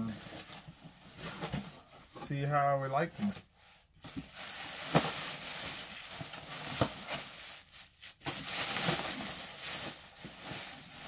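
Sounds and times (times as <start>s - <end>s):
plastic bags crinkling: 4.0s - 11.0s.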